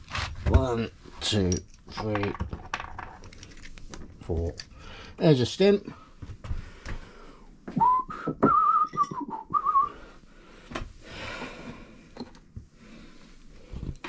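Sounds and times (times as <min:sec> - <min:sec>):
clicks and knocks of handled parts: 0:01.4 - 0:04.8
man whistling a tune: 0:07.8 - 0:10.0.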